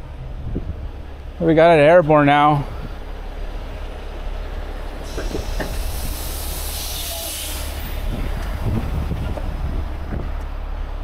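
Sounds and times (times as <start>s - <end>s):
diesel engine rumbling: 0.0s - 11.0s
long air hiss: 5.0s - 8.5s.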